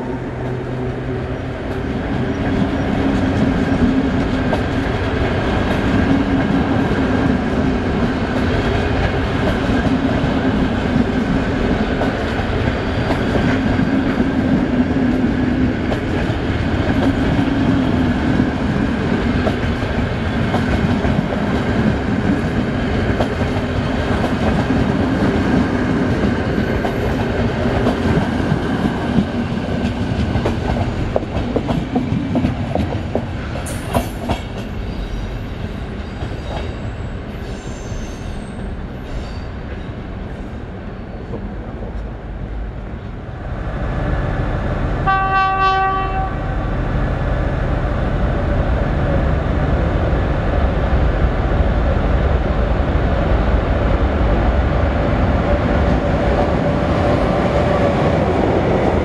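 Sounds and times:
train wheels rumbling on rail: 0.0s - 59.0s
clickety-clack over rail joints: 0.4s - 35.2s, 36.1s - 36.8s.

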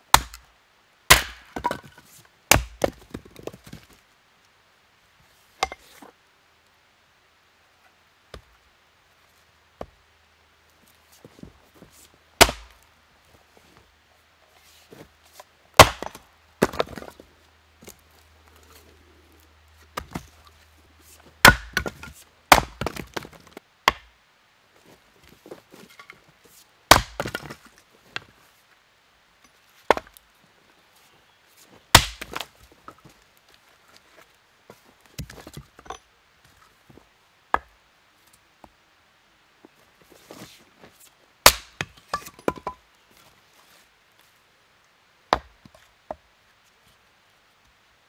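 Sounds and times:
axe striking wood: 0.1s - 0.4s, 1.1s - 1.9s, 2.5s - 3.0s, 12.4s - 12.7s, 15.8s - 17.1s, 21.4s - 23.3s, 23.9s - 24.1s, 26.9s - 27.5s, 31.9s - 32.4s, 41.5s - 42.7s
split wood pieces landing: 32.0s - 32.5s.

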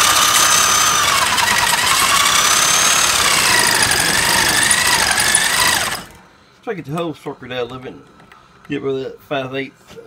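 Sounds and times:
drill bit grinding metal: 0.0s - 6.2s
electric drill whining: 0.0s - 6.2s.

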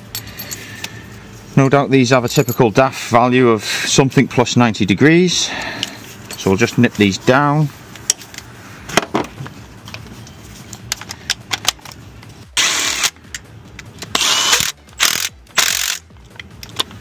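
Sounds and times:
cordless ratchet running: 14.1s - 16.8s
tools clicking and tapping on metal: 15.7s - 17.0s.

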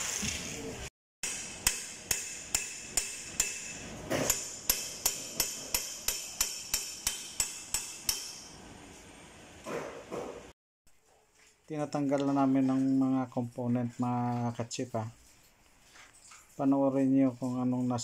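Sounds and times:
hammer tapping on metal: 1.2s - 8.6s.

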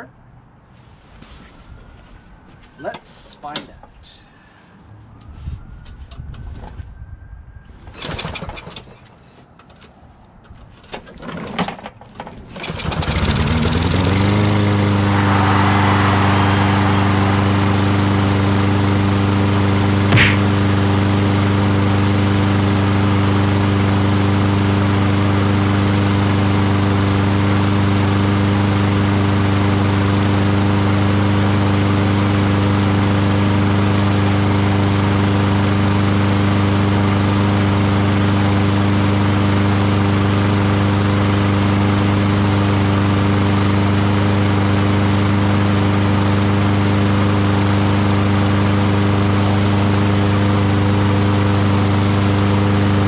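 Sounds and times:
lawn mower engine running: 37.5s - 53.0s.

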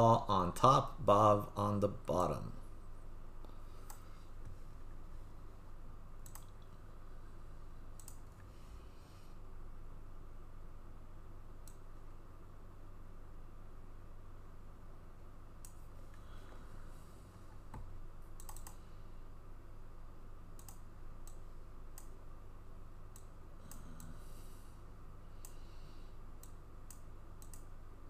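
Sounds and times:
steady low hum: 0.0s - 28.0s
mouse and keyboard clicks: 6.2s - 6.6s, 18.4s - 18.8s.

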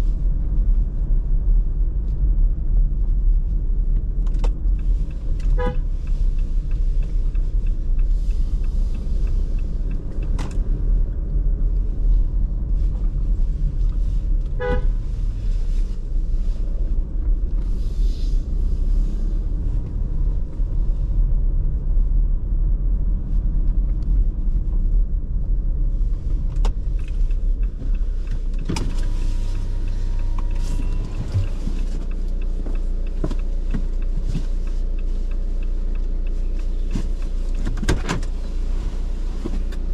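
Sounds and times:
road and engine rumble: 0.0s - 39.9s
car horn toots: 5.5s - 5.9s, 14.6s - 15.0s, 29.1s - 31.9s.

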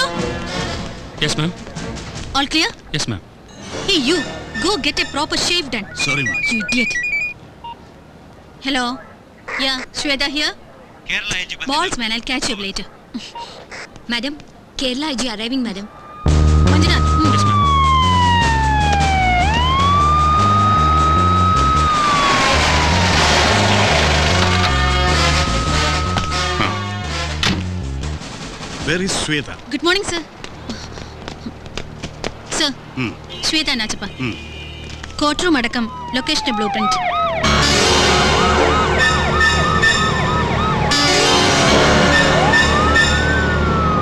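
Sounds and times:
police siren wailing: 4.6s - 7.4s, 15.9s - 27.3s, 35.0s - 44.0s
film music with deep bass line: 16.3s - 29.0s, 37.2s - 44.0s.

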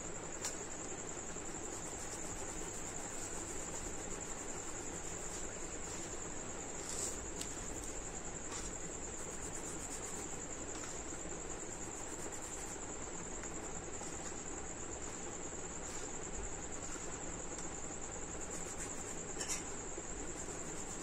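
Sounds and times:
crickets trilling: 0.0s - 21.0s.

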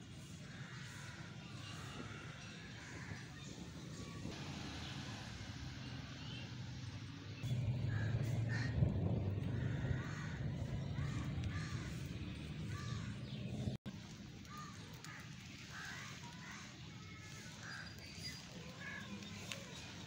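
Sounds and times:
crows cawing: 0.4s - 3.3s, 7.9s - 8.8s, 9.4s - 12.1s, 12.7s - 13.4s, 14.4s - 17.9s
low steady rumble: 4.3s - 14.1s.

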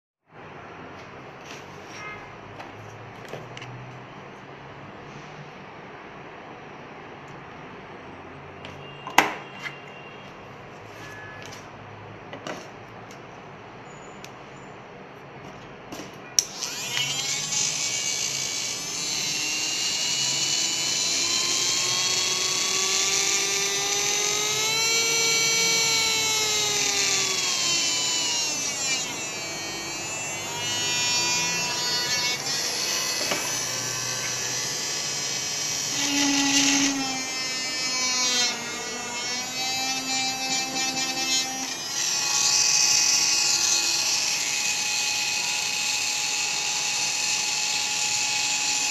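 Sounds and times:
hand drill motor whining: 16.4s - 48.9s.

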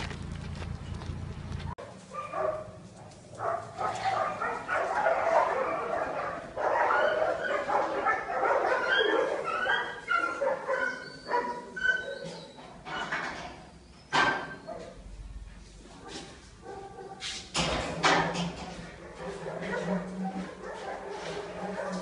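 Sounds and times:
dog barking and whimpering: 2.0s - 2.7s, 3.4s - 12.6s, 16.0s - 17.2s, 19.0s - 22.0s.

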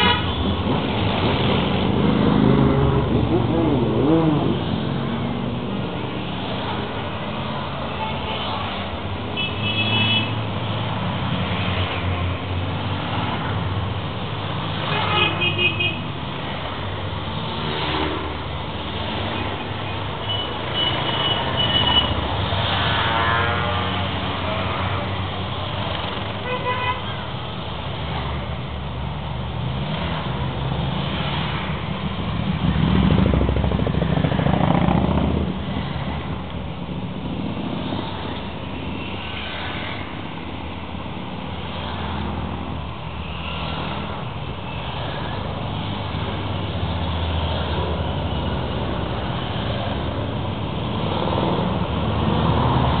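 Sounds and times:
motorcycles riding past: 0.7s - 7.0s, 31.2s - 36.4s.

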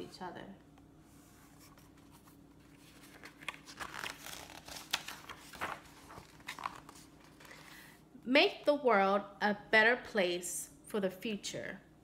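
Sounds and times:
book pages rustling: 1.0s - 7.8s.

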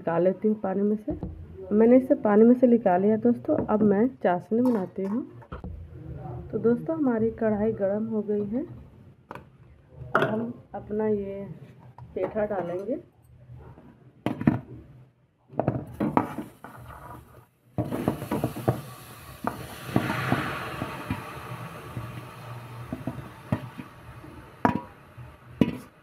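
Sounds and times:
steady hiss: 16.2s - 26.0s.

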